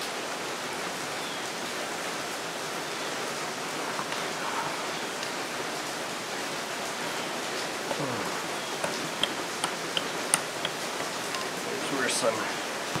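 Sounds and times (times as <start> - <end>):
rain hissing: 0.0 - 13.0
metal engine parts clicking: 8.8 - 11.6.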